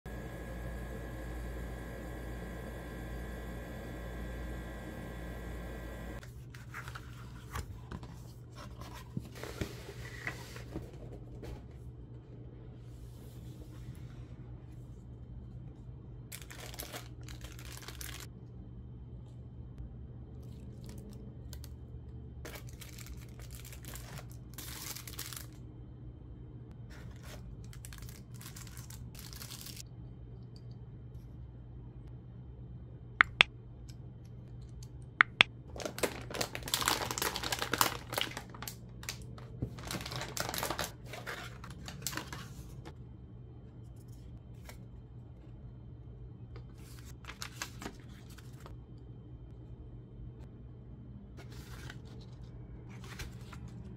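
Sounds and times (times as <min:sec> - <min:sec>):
packaging rustling and crinkling: 0:16.3 - 0:18.3, 0:22.5 - 0:25.6, 0:26.9 - 0:29.8, 0:35.7 - 0:42.9, 0:46.7 - 0:48.8.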